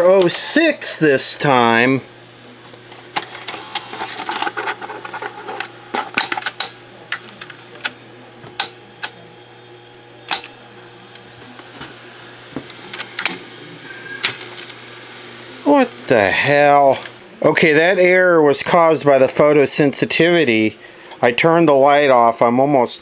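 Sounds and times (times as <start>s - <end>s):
vcr mechanism clicks: 2.9s - 9.2s, 10.3s - 11.3s, 12.7s - 13.4s.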